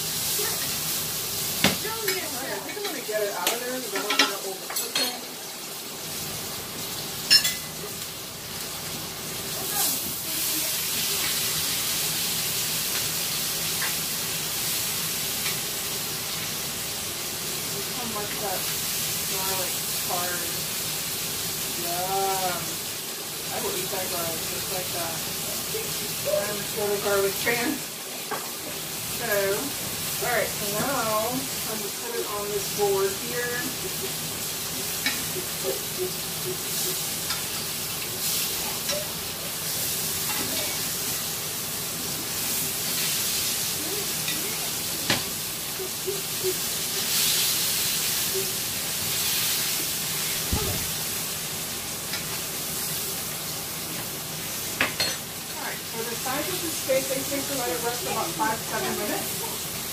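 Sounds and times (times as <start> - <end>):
steak sizzling in butter: 0.0 - 59.9.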